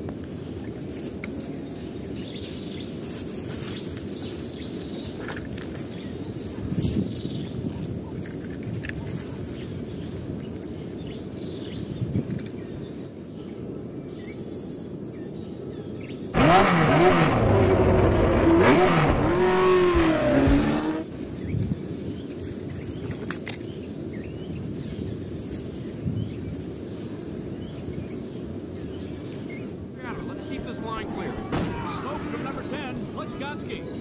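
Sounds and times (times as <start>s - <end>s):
race car engine revving: 16.4s - 21.1s, 30.0s - 34.0s.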